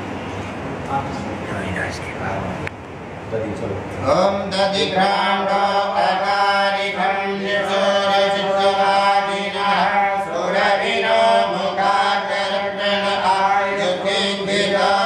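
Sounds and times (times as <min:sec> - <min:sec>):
mantra chanting: 0:04.0 - 0:15.0.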